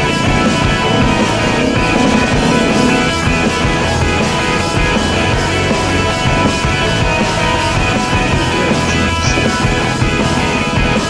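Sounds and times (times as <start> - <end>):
rock music: 0.0 - 11.0.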